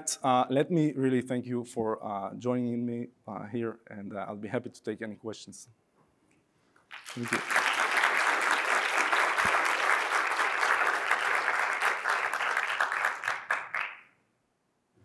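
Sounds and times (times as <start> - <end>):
audience applauding: 6.9 - 14.1.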